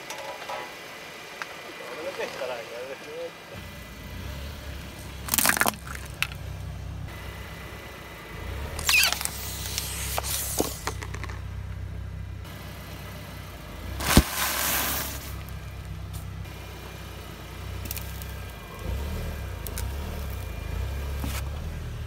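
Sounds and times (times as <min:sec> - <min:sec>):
car engine idling: 0:00.0 - 0:22.0
tyre crushing plastic objects: 0:05.2 - 0:06.4, 0:08.8 - 0:11.4, 0:14.0 - 0:15.5
snack bag bursting with pop: 0:14.0 - 0:15.2.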